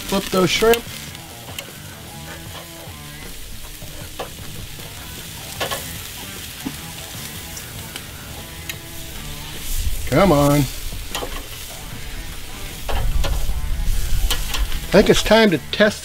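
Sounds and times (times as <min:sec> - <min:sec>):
meat sizzling on a grill: 0:00.0 - 0:16.0
metal tongs clicking on grate: 0:00.6 - 0:03.0, 0:03.6 - 0:06.0, 0:07.9 - 0:08.9, 0:11.1 - 0:11.6, 0:12.8 - 0:13.5, 0:14.3 - 0:14.9.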